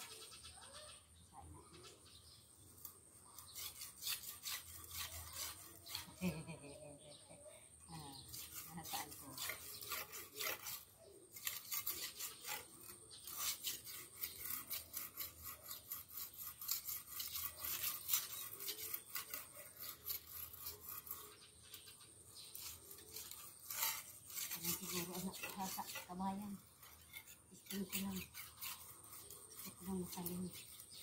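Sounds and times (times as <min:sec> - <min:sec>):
rasping scraping strokes on weeds: 0:02.2 - 0:07.2, 0:07.8 - 0:31.0.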